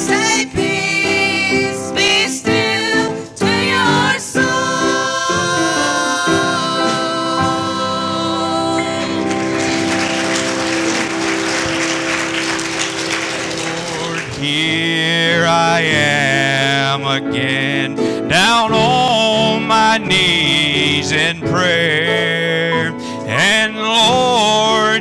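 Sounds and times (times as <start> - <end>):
women singing: 0.0 - 9.9
grand piano chord: 5.1 - 23.4
congregation applauding: 8.8 - 15.5.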